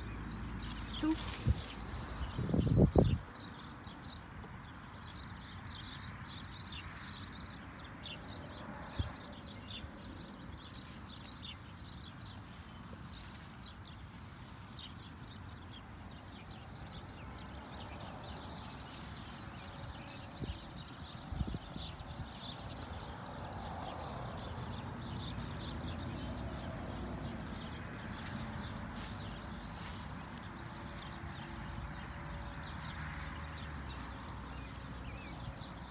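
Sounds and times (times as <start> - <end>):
wind rumble on microphone: 0.8 - 4.0, 12.8 - 35.9.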